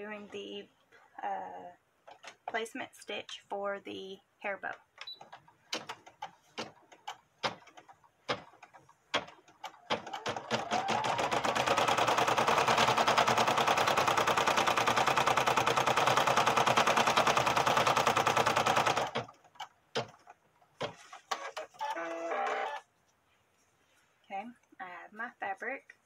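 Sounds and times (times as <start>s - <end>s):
embroidery machine stitching rattle: 5.2s - 20.4s.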